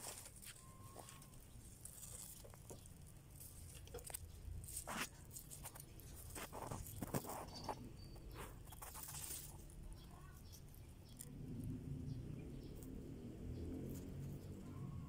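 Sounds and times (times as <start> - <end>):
grass rustling: 0.0 - 11.8
rabbits chewing grass: 0.0 - 15.0.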